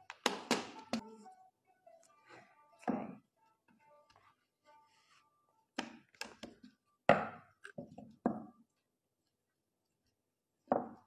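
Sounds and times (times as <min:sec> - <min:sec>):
knocks and thuds on wooden worktop: 0:10.7 - 0:11.0.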